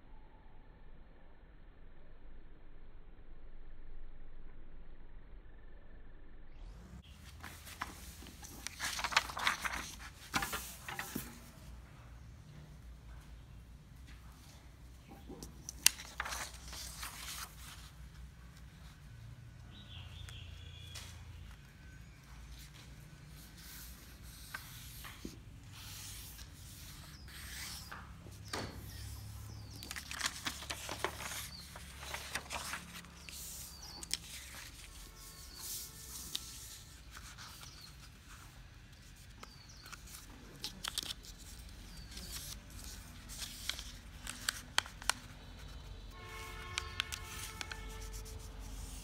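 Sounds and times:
paper being folded: 7.2 - 11.6, 15.4 - 18.9, 22.6 - 28.2, 28.8 - 49.0
paper crinkling: 7.2 - 11.6, 15.6 - 17.9, 28.9 - 38.1, 39.4 - 49.0.

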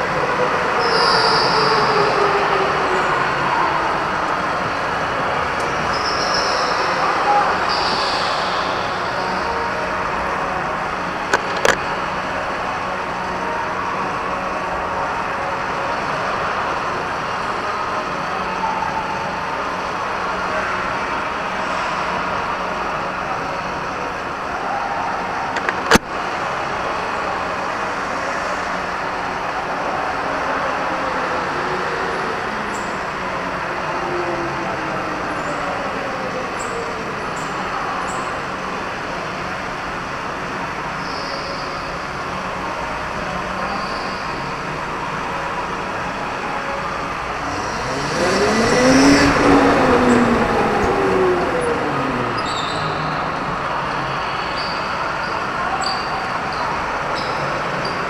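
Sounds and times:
electric go-kart motor whine: 41.9 - 57.0
tyre and motor rush: 45.6 - 55.0.

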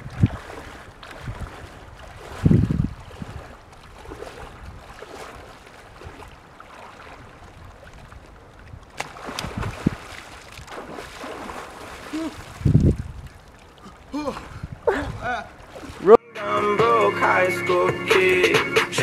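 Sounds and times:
wind gusting on microphone: 0.0 - 6.4, 7.1 - 13.5, 14.2 - 16.1.

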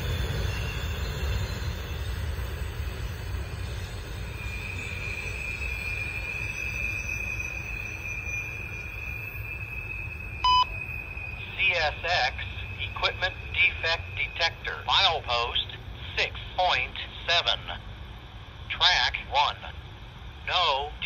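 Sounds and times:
high wheel squeal: 0.0 - 14.8
train wheels rumbling on rails: 0.0 - 21.0
electronic beep from radio: 10.4 - 15.6.

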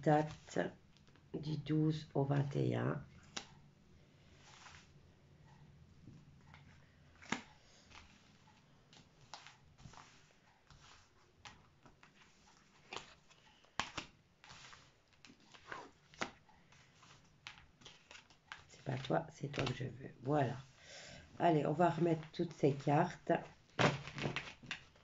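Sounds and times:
cards sliding and tapping on cloth: 4.4 - 4.9, 6.5 - 18.7.

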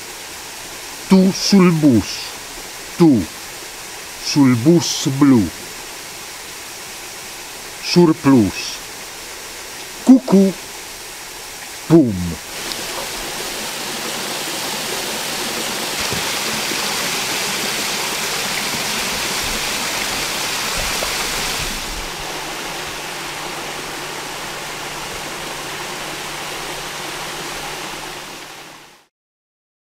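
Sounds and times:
waterfall splashing into pool: 0.0 - 29.1.

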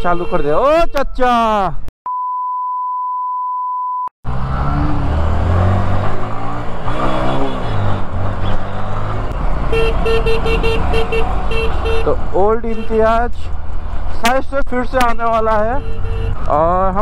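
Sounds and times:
city traffic noise: 0.0 - 1.9, 4.2 - 17.0
high censor bleep: 2.1 - 4.1
vehicle horn tooting: 9.7 - 13.0, 15.7 - 16.5.

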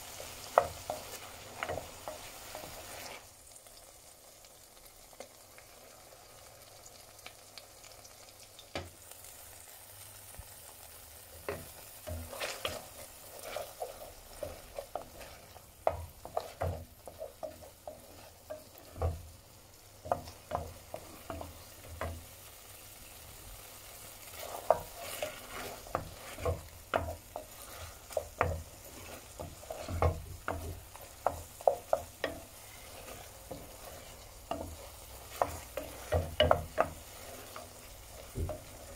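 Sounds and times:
spoon scraping a pan: 0.0 - 3.3, 10.8 - 19.4, 20.0 - 38.9
mushrooms sizzling in pan: 0.0 - 38.9.

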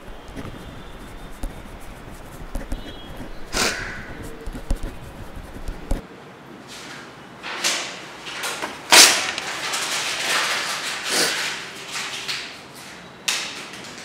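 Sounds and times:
noisy swishes and scrapes: 0.0 - 6.0.

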